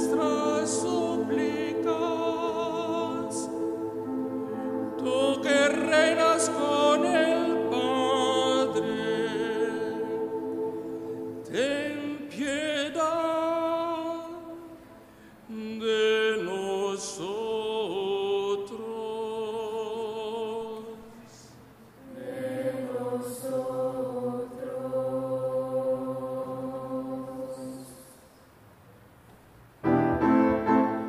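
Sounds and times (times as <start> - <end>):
choir holding chords: 0.0 - 21.2, 21.9 - 28.3, 29.8 - 31.0
man singing with vibrato: 0.0 - 21.4.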